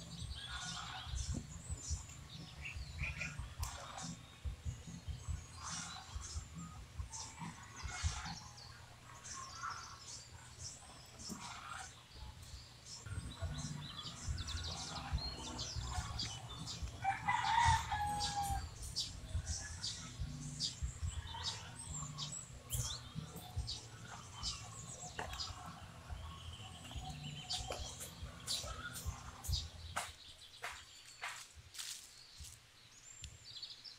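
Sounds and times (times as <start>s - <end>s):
small birds chirping: 0.0s - 33.9s
rooster crowing: 17.0s - 18.8s.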